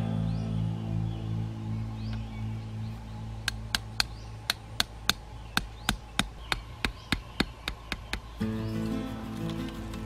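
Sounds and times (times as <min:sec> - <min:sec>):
machete tapping metal stake: 0:03.4 - 0:08.4.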